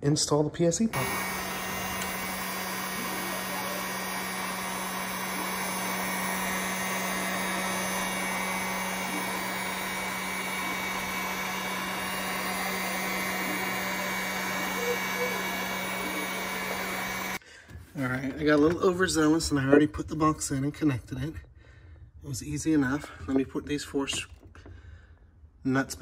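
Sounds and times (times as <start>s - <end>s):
heat gun blowing air: 1.0s - 17.4s.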